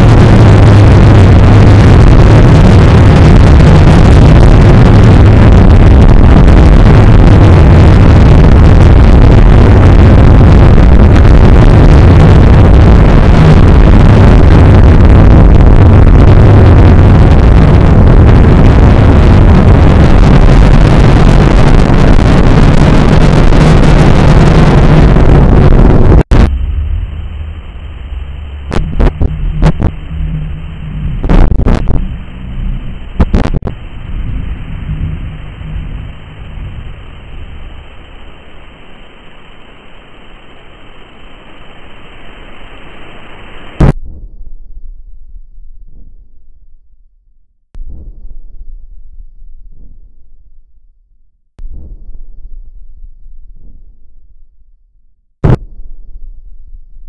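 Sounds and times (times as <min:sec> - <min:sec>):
loud harsh wall of noise: 0:00.0 - 0:44.0
muffled rumble: 0:00.0 - 0:57.0.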